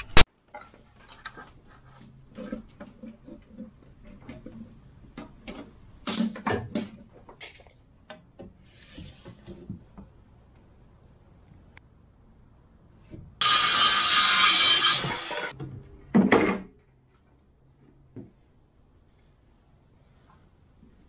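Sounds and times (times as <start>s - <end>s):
hand tools and lumber knocking: 13.1s - 16.7s.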